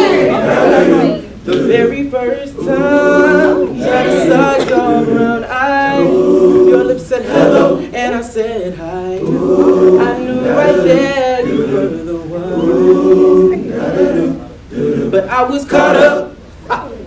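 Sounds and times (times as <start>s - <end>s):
male a cappella group singing: 0.0s - 16.9s.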